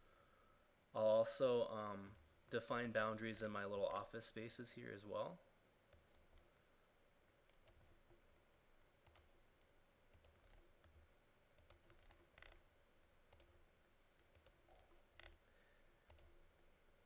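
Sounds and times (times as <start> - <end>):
computer mouse clicks: 7.4 - 8.2, 9.0 - 9.4, 10.1 - 11.0, 11.6 - 12.6, 13.3 - 13.6, 14.2 - 15.4, 16.0 - 16.7.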